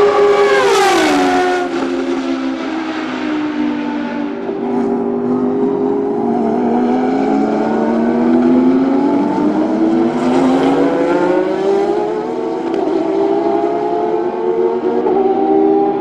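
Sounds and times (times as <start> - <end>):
race cars accelerating: 0.0 - 16.0.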